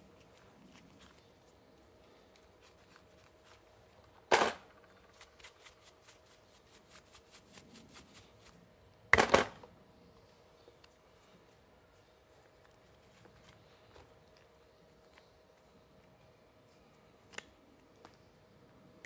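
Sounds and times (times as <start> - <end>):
steel wool scratchy rustles: 4.9 - 8.7.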